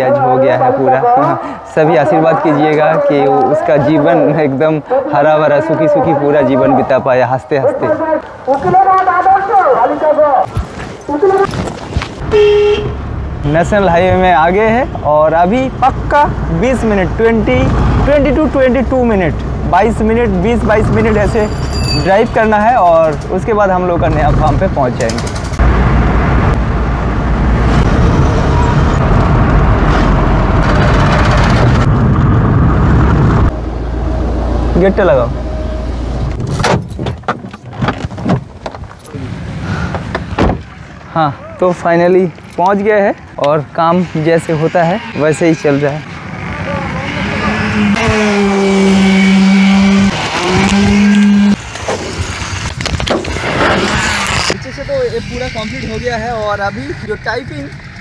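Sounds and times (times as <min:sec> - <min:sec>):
car cabin road noise: 0:07.7 - 0:41.2, 0:45.1 - 0:58.0
hand tools scraping concrete: 0:48.1 - 0:54.6.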